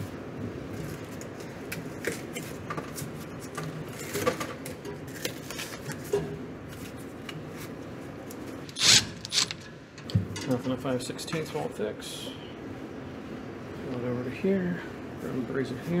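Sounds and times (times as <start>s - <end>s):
nut driver rasping on screw: 8.7s - 9.7s.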